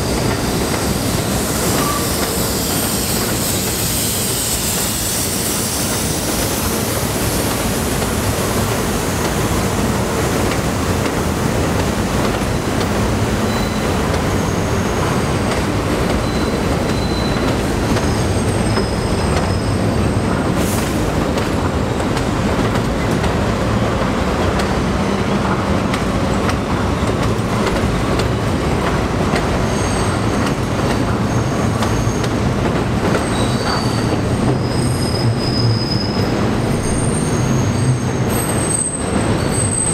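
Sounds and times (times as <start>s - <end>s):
train rumbling on steel structure: 0.0s - 39.9s
high-pitched wheel squeals: 16.2s - 20.2s, 33.2s - 39.9s.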